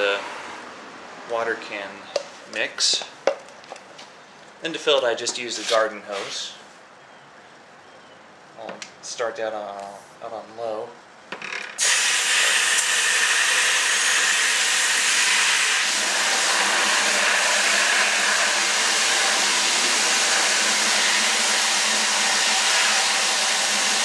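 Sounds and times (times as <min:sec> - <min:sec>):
hose water pouring into bucket: 0:11.8 - 0:24.0.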